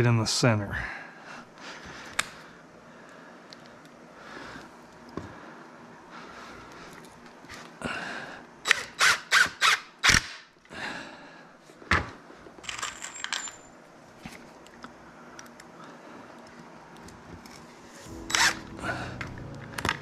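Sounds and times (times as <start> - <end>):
impact driver driving screw: 8.7 - 10.4.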